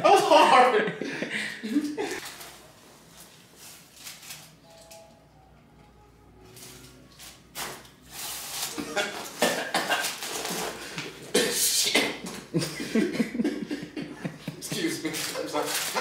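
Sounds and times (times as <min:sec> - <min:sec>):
men laughing: 0:00.0 - 0:02.2, 0:08.7 - 0:10.2, 0:12.5 - 0:16.0.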